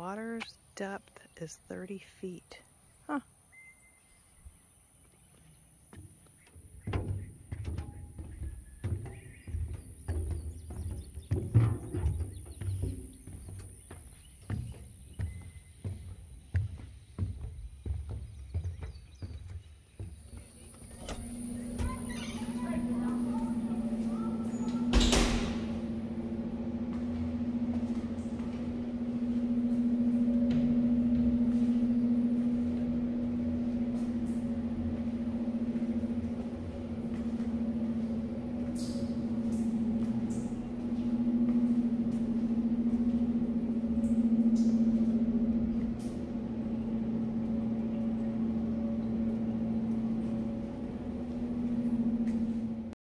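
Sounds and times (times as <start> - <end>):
steady mechanical hum: 0.0 - 53.0.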